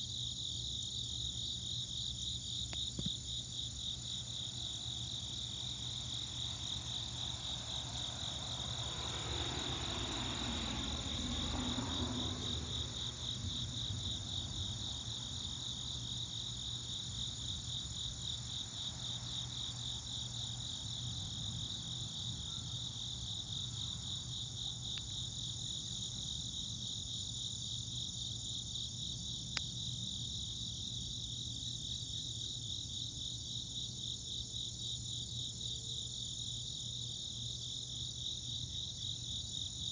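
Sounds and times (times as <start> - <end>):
crickets chirping: 0.0 - 39.9.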